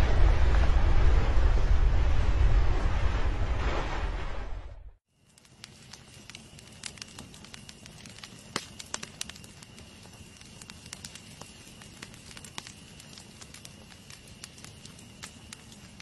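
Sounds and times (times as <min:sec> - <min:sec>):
campfire crackling and popping: 0:05.1 - 0:16.0
hiss of burning: 0:05.1 - 0:16.0.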